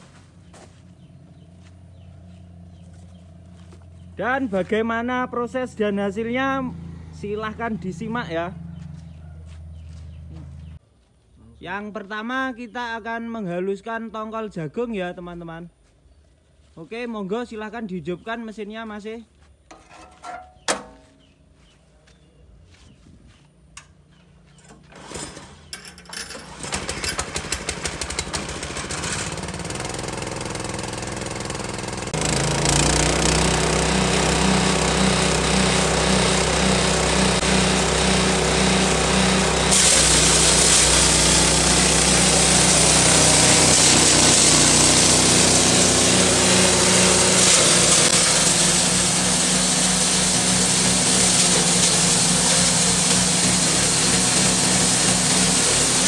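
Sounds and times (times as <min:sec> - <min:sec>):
corn cobs grinding in mill: 0:24.7 - 0:56.0
petrol engine running: 0:26.3 - 0:56.0.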